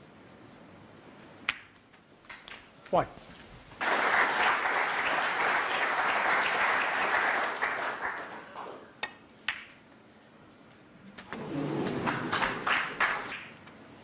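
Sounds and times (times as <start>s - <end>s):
snooker balls clicking: 1.5s - 3.0s, 9.0s - 9.8s
audience applause: 3.8s - 8.8s, 11.4s - 13.6s.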